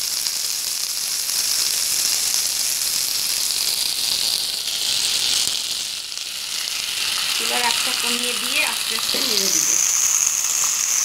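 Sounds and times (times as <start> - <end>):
food sizzling in a frying pan: 0.0 - 11.0.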